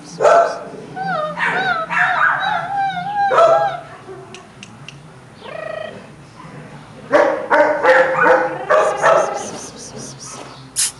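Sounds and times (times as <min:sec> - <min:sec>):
puppy yapping: 0:00.2 - 0:03.9, 0:07.2 - 0:10.9.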